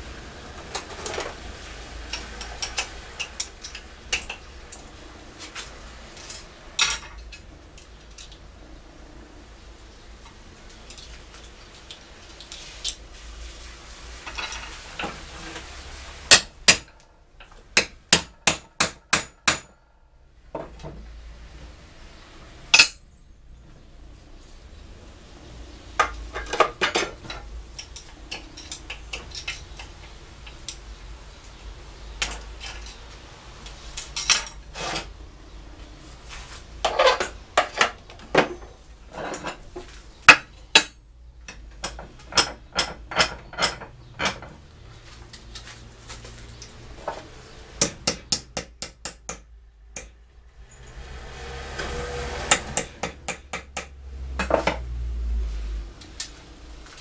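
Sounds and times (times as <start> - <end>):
tools clattering on steel bench: 6.2 - 8.4, 14.2 - 15.2, 22.7 - 23.1, 26.0 - 30.0, 33.9 - 35.1, 36.8 - 44.6
small hammer strikes: 17.8 - 19.8, 40.3 - 43.9, 47.8 - 50.2, 52.4 - 54.8.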